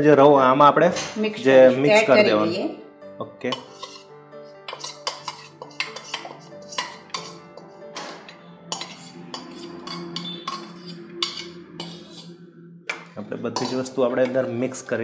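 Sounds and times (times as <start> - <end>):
background music with held notes: 0.0 - 15.0
spoon clinking against metal bowl: 3.5 - 4.0, 4.7 - 12.3, 13.6 - 14.4.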